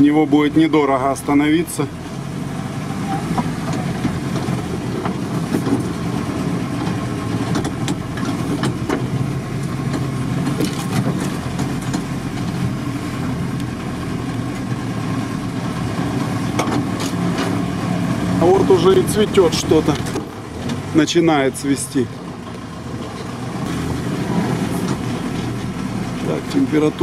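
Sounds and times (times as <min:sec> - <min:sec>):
van engine and road drone: 0:00.0 - 0:27.0
sharp clicks and knocks: 0:06.8 - 0:12.6, 0:16.5 - 0:17.6.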